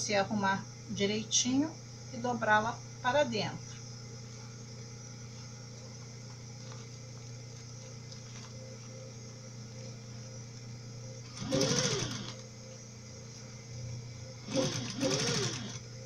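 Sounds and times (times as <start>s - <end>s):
steady low hum: 0.0s - 16.0s
sewing machine stitching: 11.3s - 12.4s, 14.4s - 15.8s.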